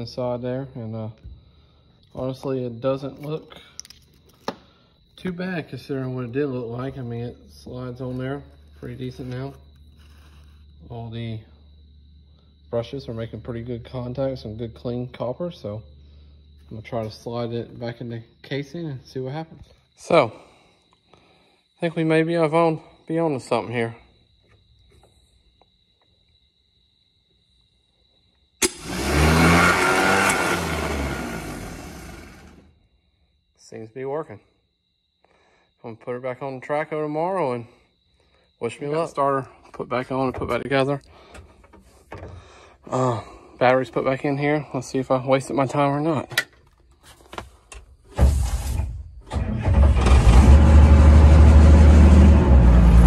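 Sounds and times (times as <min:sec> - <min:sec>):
diesel engine running loudly: 0:28.6 - 0:32.7, 0:49.6 - 0:53.0
starter motor whirring: 0:28.6 - 0:32.7, 0:49.3 - 0:53.0.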